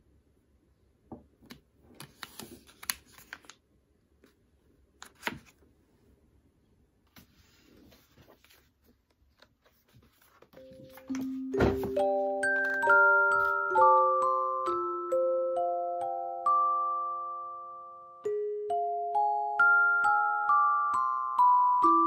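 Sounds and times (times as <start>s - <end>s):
light chiming music: 10.6s - 22.0s.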